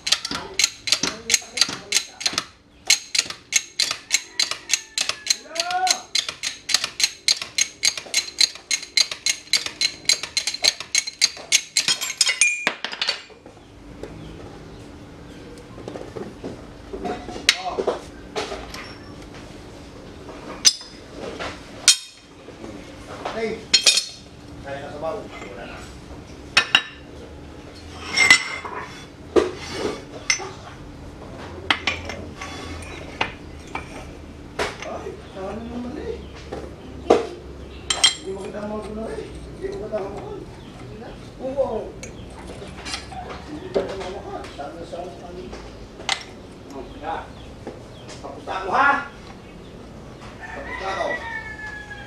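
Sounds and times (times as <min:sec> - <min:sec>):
shop press metallic clicking: 0:00.0 - 0:12.7
metal parts clinking: 0:00.0 - 0:13.3, 0:21.8 - 0:22.2, 0:23.7 - 0:24.2, 0:28.0 - 0:28.7
bearing ringing: 0:00.0 - 0:13.4, 0:20.6 - 0:21.0, 0:21.8 - 0:22.3, 0:23.7 - 0:24.3, 0:27.8 - 0:29.1.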